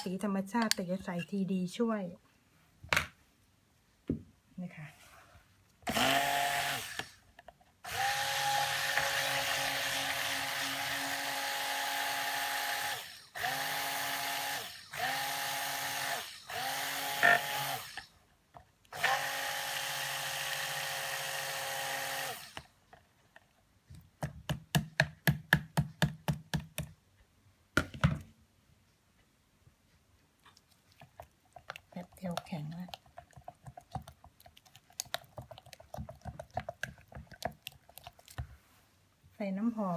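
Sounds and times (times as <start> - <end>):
stick blender motor whirring: 5.8 - 7.2, 7.8 - 18.1, 18.9 - 22.7.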